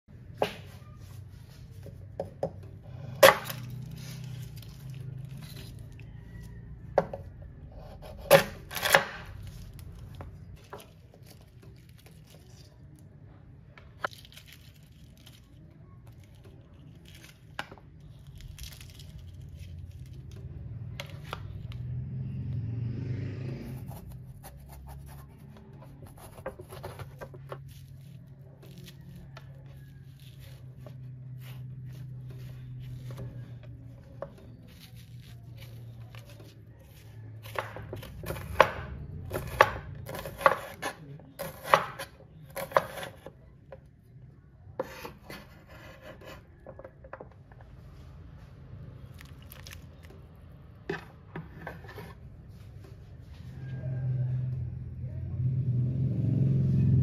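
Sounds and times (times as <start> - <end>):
shells crackling as peeled: 14.0 - 20.4, 49.1 - 50.2
spoon scraping gourd: 23.6 - 43.5, 49.0 - 52.7.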